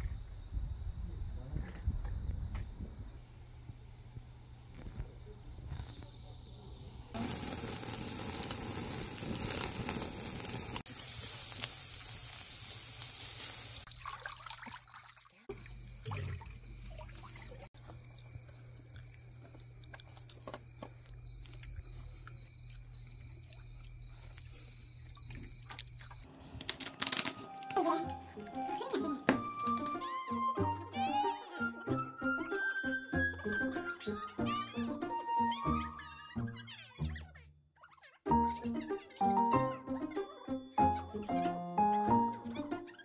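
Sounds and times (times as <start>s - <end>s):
steady hiss: 7.2s - 13.9s
faint trickling water: 13.9s - 17.7s
small ticks: 18.5s - 26.2s.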